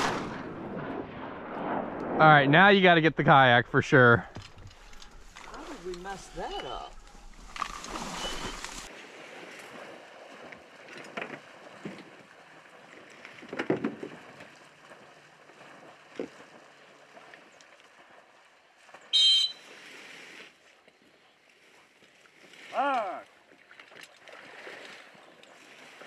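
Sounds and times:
dog whistle blast: 19.1 - 19.7.

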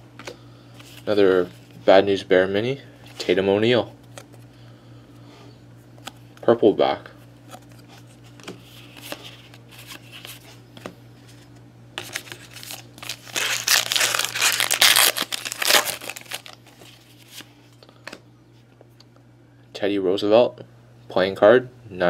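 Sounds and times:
card pack wrapper tearing and crinkling: 12.0 - 17.5.

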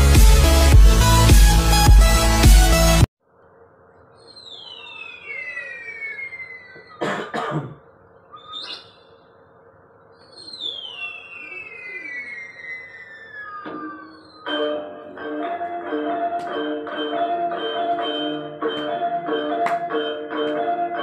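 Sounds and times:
high screeching bird cry: 4.1 - 7.4, 8.2 - 9.2, 10.2 - 14.6.

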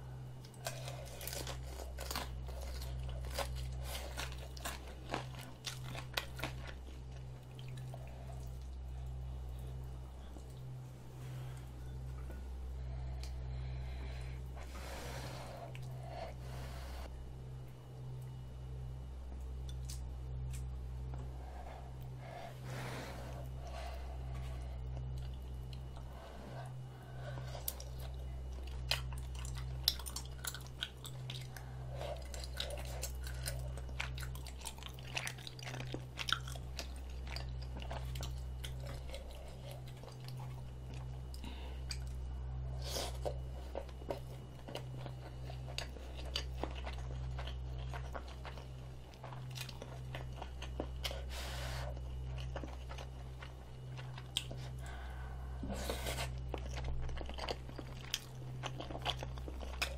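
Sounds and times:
low hum: 0.0 - 59.9
chewing and biting food: 0.4 - 8.8, 23.4 - 59.9.

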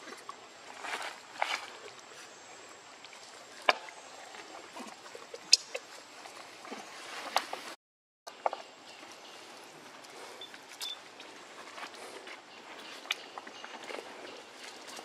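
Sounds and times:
rustling of dry leaves: 0.0 - 2.6, 8.6 - 15.0.

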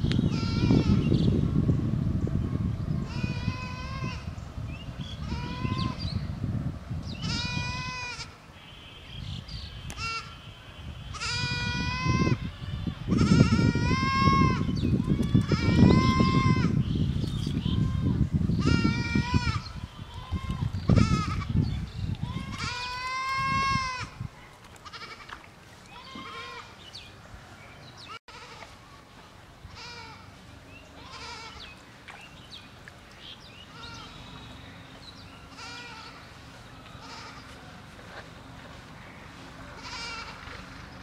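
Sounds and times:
animal bleating: 0.3 - 1.1, 5.2 - 6.0, 7.2 - 8.4, 11.1 - 12.5, 13.1 - 16.8, 22.2 - 24.2, 24.8 - 25.3, 25.9 - 26.7, 28.3 - 28.7, 31.0 - 31.7, 35.5 - 36.2, 37.0 - 37.6, 39.8 - 40.6.

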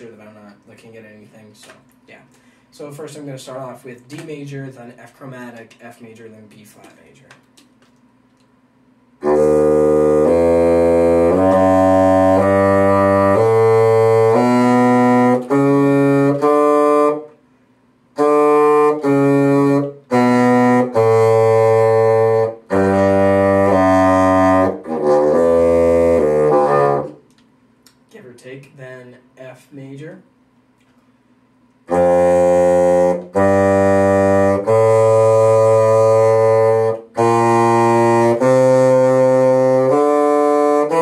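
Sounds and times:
bassoon playing a scale: 9.2 - 17.3, 18.2 - 27.2, 31.9 - 41.0.

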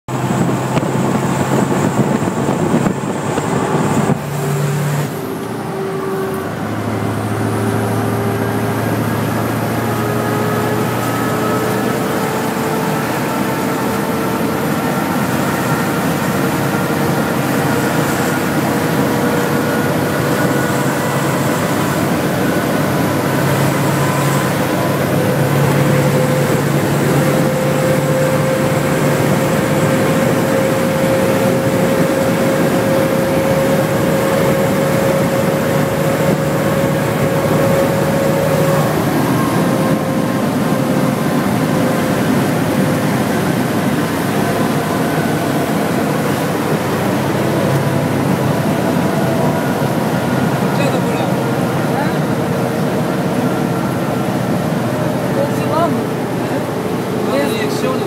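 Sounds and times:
diesel engine droning: 0.0 - 58.0
wind and road noise: 0.1 - 58.0.

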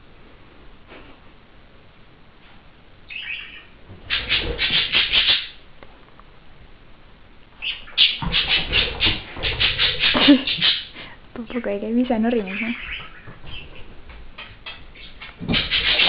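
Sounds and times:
budgerigar squawking: 3.1 - 5.6, 7.6 - 11.0, 12.4 - 16.0.

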